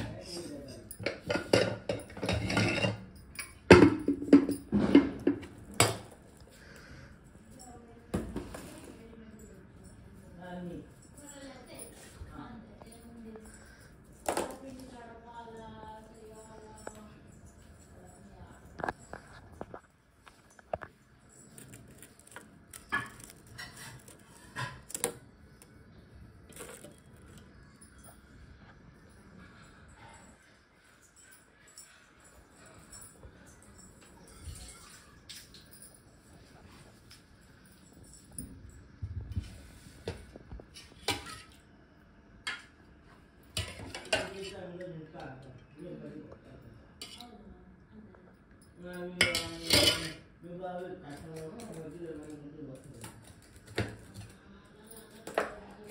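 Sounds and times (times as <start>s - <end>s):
steel dishes clinking: 0.0s - 6.1s, 49.2s - 50.2s.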